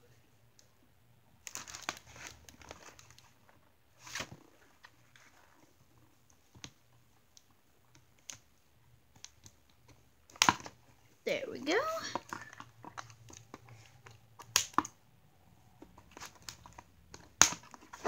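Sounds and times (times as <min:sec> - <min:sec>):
packaging rustle: 0:01.4 - 0:05.6
plastic and cardboard crinkling: 0:01.4 - 0:08.5, 0:09.1 - 0:15.0, 0:15.6 - 0:18.0.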